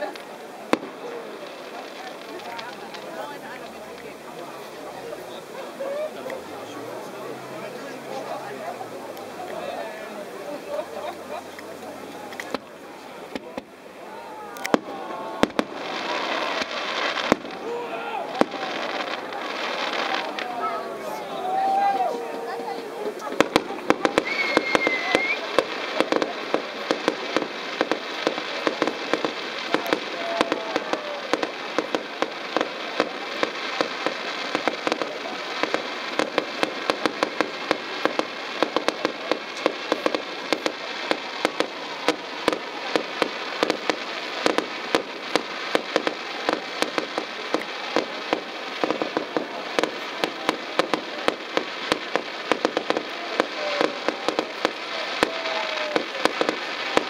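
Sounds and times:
fireworks crackling: 0.0 - 57.0
sharp firework reports: 0.0 - 57.0.

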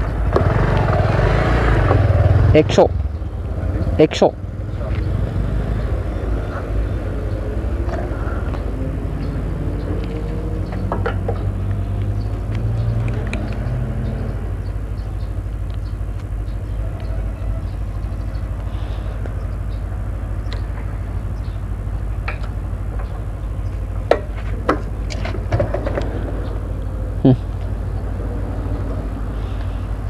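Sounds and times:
fuel pump humming: 14.3 - 30.0.

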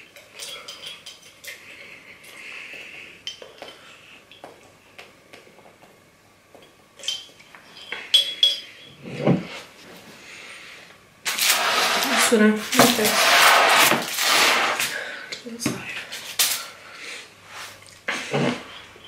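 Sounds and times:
glass jar clinking: 0.0 - 1.6, 6.6 - 9.0.

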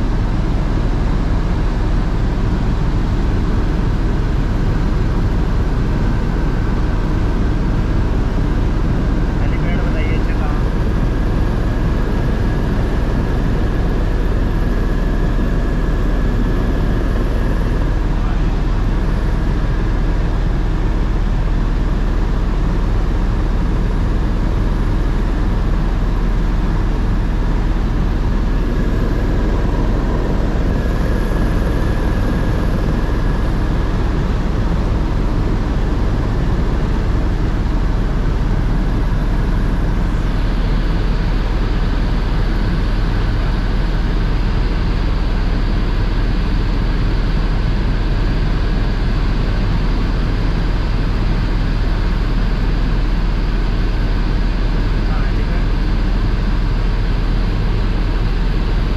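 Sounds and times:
helicopter rotor and engine drone: 0.0 - 58.9
faint whine: 9.0 - 21.1, 24.2 - 42.9.

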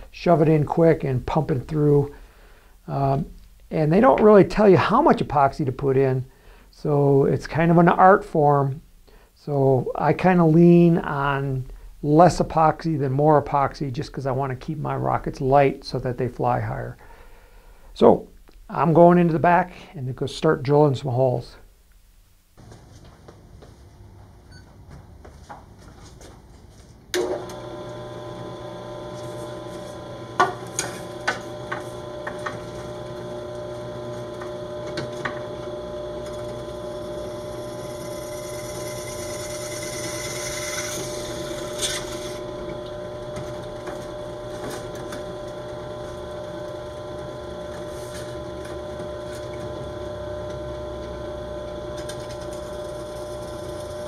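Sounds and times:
drill press motor running: 27.1 - 54.0
drill bit hissing through tube: 27.6 - 54.0.

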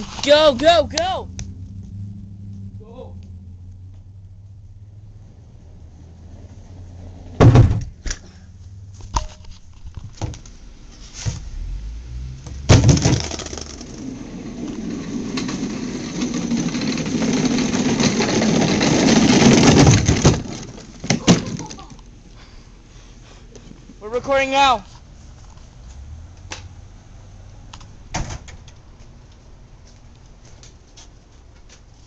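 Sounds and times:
hard wheels rolling over paving: 0.0 - 8.0, 9.5 - 22.4
toy car tipping over knocks: 12.5 - 22.0.

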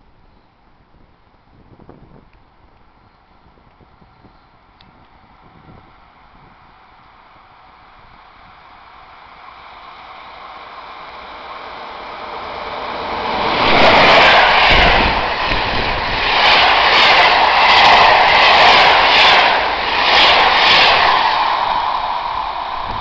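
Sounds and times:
electric train passing at speed: 0.0 - 23.0
rushing of coaches passing: 8.7 - 23.0.

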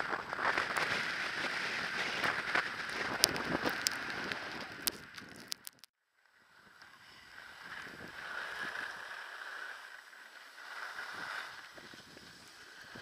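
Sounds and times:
wind on microphone: 0.0 - 5.6
skis sliding over snow: 0.0 - 13.0.

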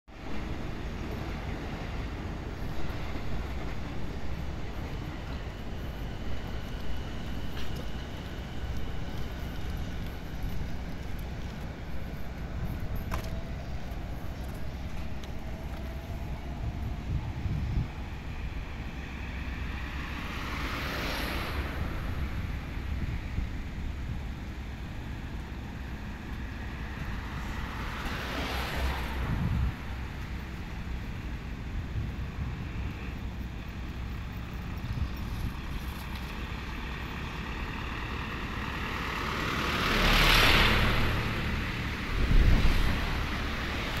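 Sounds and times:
electric train low rumble: 0.1 - 44.0
wind on microphone: 8.5 - 19.0, 28.8 - 30.2, 40.9 - 44.0.

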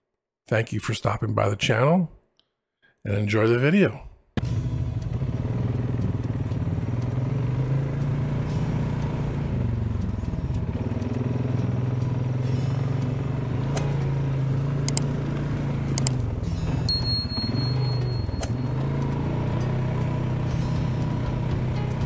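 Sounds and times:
atv engine running: 4.4 - 22.0
sharp ticks: 4.8 - 16.3, 17.0 - 22.0.

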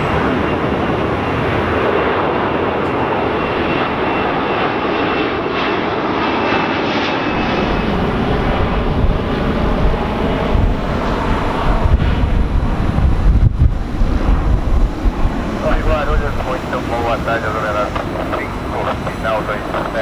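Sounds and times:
jet engines passing overhead: 0.0 - 20.0
wind rumble on microphone: 7.3 - 16.6.

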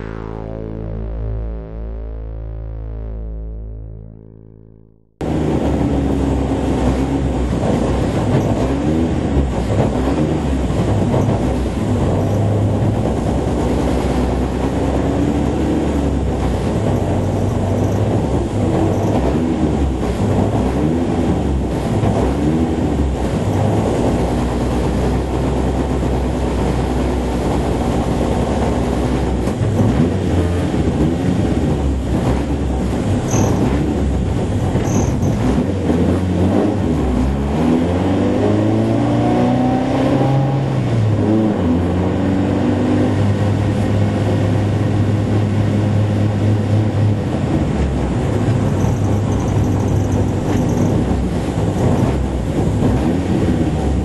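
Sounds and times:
racing car engines: 29.4 - 54.0.

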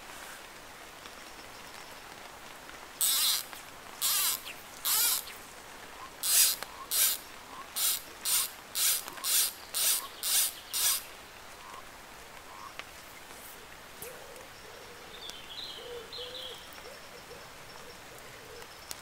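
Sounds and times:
fly line hissing zips: 3.0 - 5.5, 6.2 - 11.1.

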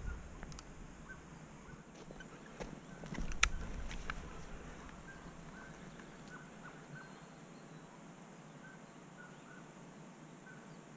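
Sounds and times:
faint high squeaky chirps: 5.0 - 8.0.

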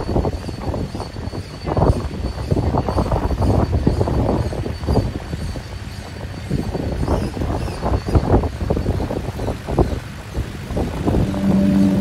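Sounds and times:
wind buffeting microphone: 0.0 - 12.0
steady musical notes: 11.2 - 12.0.

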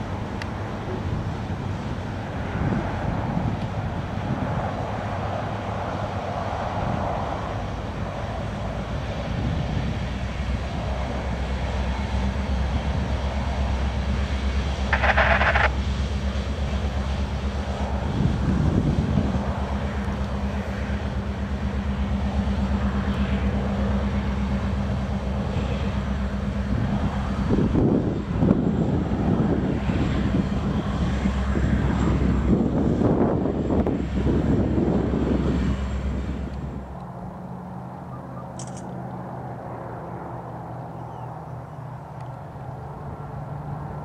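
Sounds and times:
locomotive engine drone: 0.0 - 44.0.

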